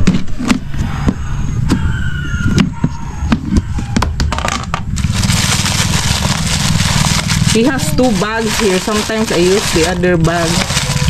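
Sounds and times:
plastic bags rustling: 4.9 - 11.0.

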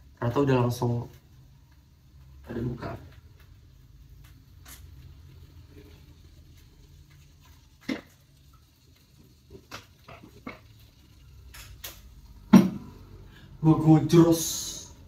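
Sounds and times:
bottle knocking and tapping: 12.5 - 12.9.

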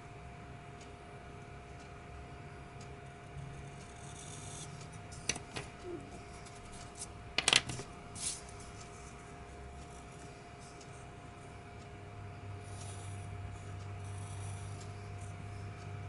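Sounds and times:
pencil scratching on paper: 3.6 - 5.3, 12.6 - 15.6
pencils clicking on a wooden desk: 6.8 - 7.9.

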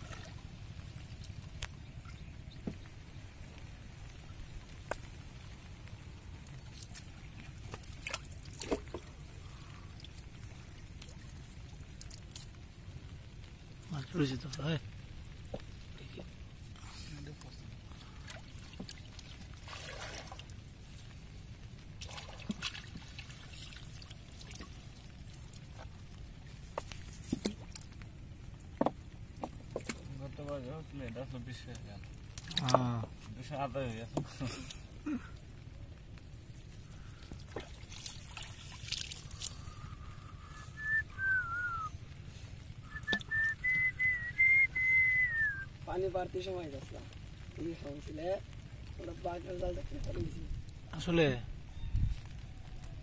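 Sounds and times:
water trickling and dripping: 0.0 - 53.0
water trickling off net: 17.5 - 21.2, 21.9 - 28.5, 36.9 - 40.1
splashy net pulls: 19.6 - 20.4
person whistling a tune: 40.4 - 41.9, 42.9 - 45.6.

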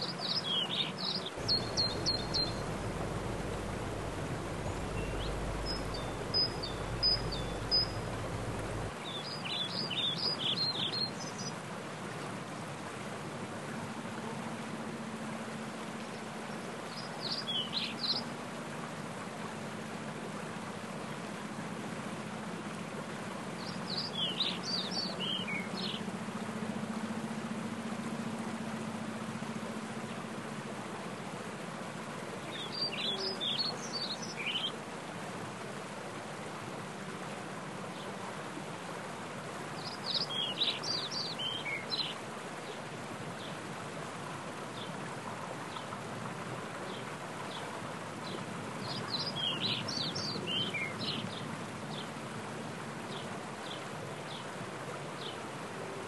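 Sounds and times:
songbird singing: 0.0 - 11.6, 16.0 - 18.3, 23.6 - 30.2, 32.4 - 34.8, 39.8 - 42.2, 48.2 - 52.1
stream running over rocks: 0.0 - 56.0.

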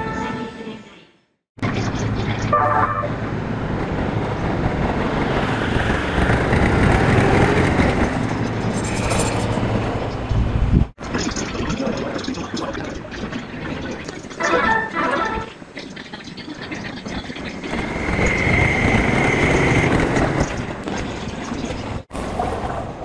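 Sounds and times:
quieter train running: 1.6 - 10.7, 17.7 - 20.8
electric train passing: 2.6 - 10.3, 17.7 - 20.8.

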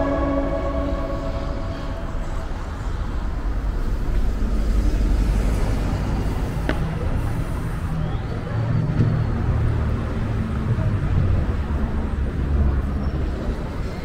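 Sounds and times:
music track: 0.0 - 3.4
bus engine rumble: 0.0 - 14.0
road traffic noise: 0.0 - 14.0.

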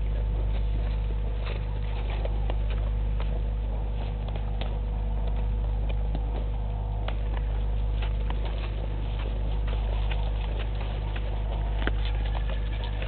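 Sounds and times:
animal cropping grass: 0.0 - 13.0
low electrical hum: 0.0 - 13.0.

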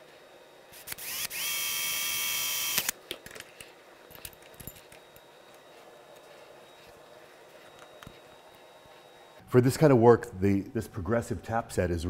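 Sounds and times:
power drill whining: 0.7 - 3.0.

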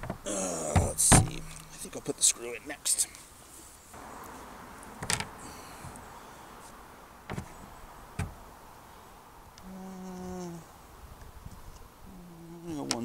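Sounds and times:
handling clicks and knocks: 0.0 - 2.0, 5.0 - 6.0.

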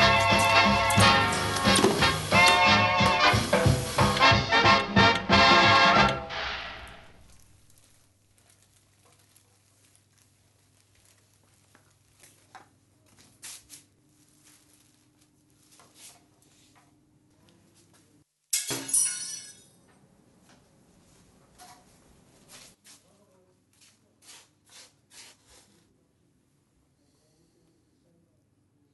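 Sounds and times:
dishes and glass clattering: 0.0 - 2.7, 18.6 - 19.9.

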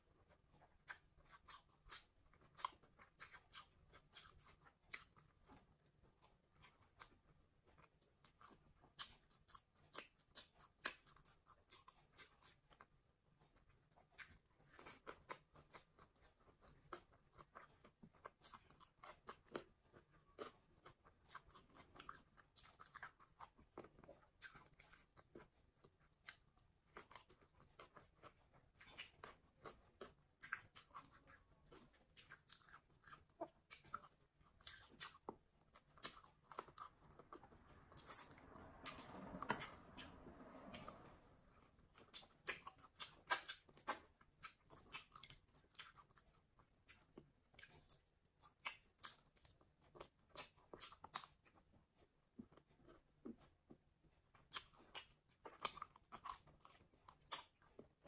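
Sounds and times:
chewing with wet mouth clicks: 0.2 - 58.0
food crunching: 14.0 - 58.0.

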